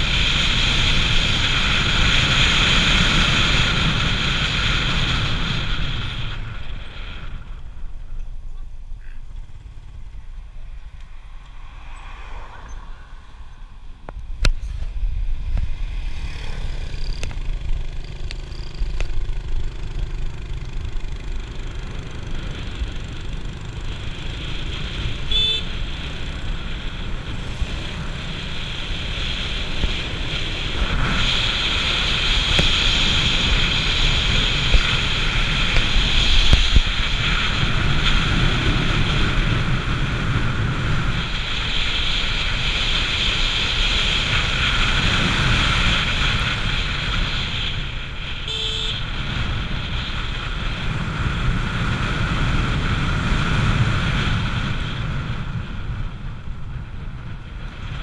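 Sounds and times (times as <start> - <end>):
motorcycle engine rumble: 0.0 - 58.0
wind and road noise: 0.0 - 58.0
high horn toot: 25.2 - 25.7, 48.4 - 49.1.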